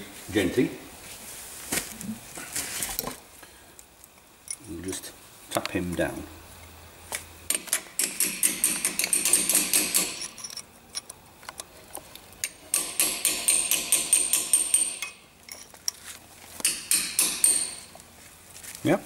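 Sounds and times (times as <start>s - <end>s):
hammer tapping metal punch: 7.5s - 10.6s, 12.7s - 15.2s, 16.6s - 17.9s.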